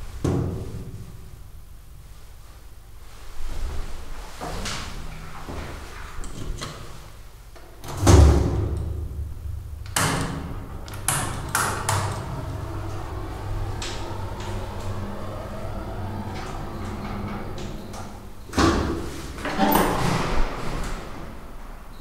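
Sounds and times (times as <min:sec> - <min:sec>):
steady low hum: 0:00.0 - 0:22.0
elevator door shutting with thud: 0:07.8 - 0:22.0.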